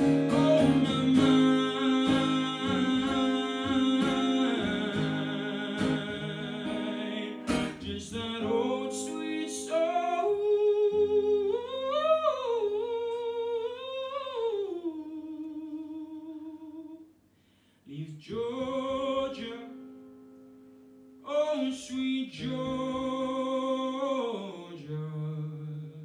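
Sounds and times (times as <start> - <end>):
acoustic guitar chords strummed: 0.0 - 10.4
man singing slow song: 0.0 - 17.1, 17.8 - 20.0, 21.3 - 26.0.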